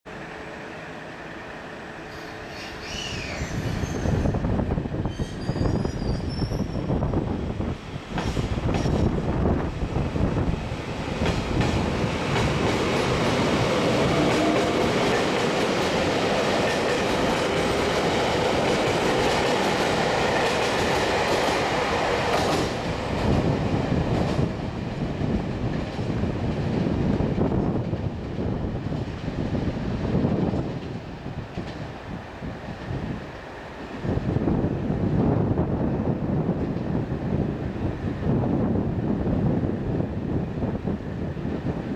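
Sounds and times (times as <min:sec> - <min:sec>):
train rail noise: 0:00.1 - 0:41.9
train wheels clicking: 0:08.0 - 0:29.6.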